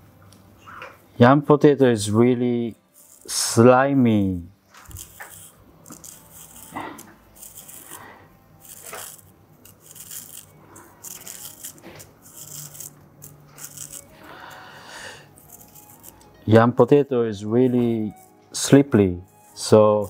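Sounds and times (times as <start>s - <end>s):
knife scraping yam skin: 4.8s - 16.4s.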